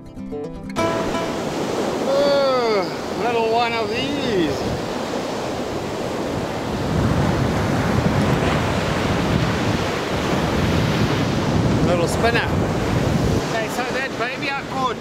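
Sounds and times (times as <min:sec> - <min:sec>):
brief pitched sound: 0:00.8 - 0:02.3
surf breaking on a beach: 0:00.8 - 0:15.0
wind buffeting microphone: 0:00.9 - 0:15.0.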